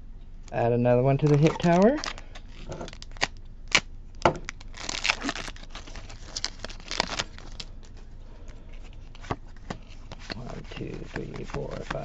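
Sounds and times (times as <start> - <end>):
foil wrapper crackling: 1.2 - 8.0, 10.1 - 12.0.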